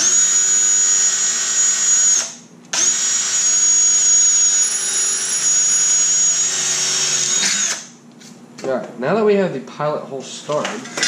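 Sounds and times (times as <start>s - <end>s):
cordless drill whining: 0.0s - 7.9s.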